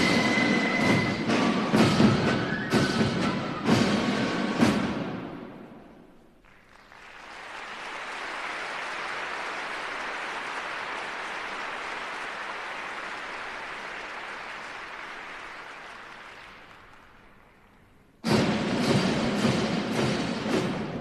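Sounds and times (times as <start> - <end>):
crowd applause: 6.4 - 18.0.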